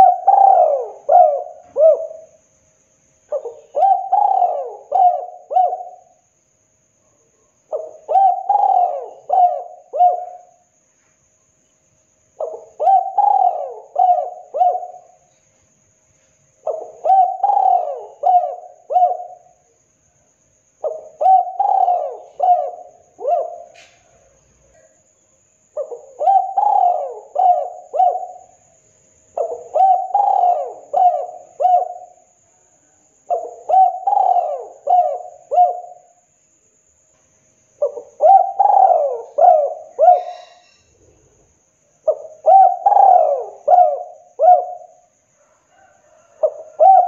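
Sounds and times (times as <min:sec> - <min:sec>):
dove cooing: 0:00.0 - 0:02.4, 0:03.3 - 0:06.2, 0:07.7 - 0:10.6, 0:12.4 - 0:15.3, 0:16.6 - 0:19.6, 0:20.8 - 0:24.9, 0:25.8 - 0:28.6, 0:29.4 - 0:32.2, 0:33.3 - 0:36.1, 0:37.8 - 0:40.8, 0:42.0 - 0:47.0.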